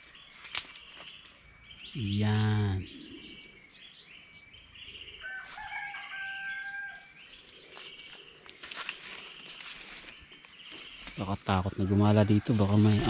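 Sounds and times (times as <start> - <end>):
small birds chirping: 0.0 - 13.0
distant rooster crowing: 5.2 - 7.2, 11.7 - 13.0.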